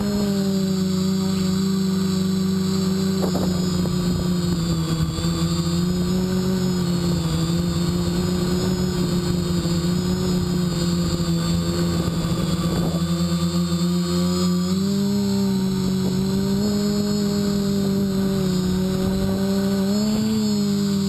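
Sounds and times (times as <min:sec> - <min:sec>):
drone propellers humming: 0:00.0 - 0:21.0
wind noise on microphone: 0:02.7 - 0:13.5, 0:15.0 - 0:20.4.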